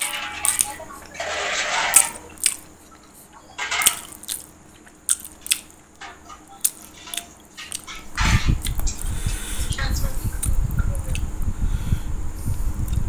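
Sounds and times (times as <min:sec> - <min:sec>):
person chewing food: 0:01.9 - 0:09.2, 0:10.4 - 0:11.3
lip smacks: 0:02.4 - 0:05.8.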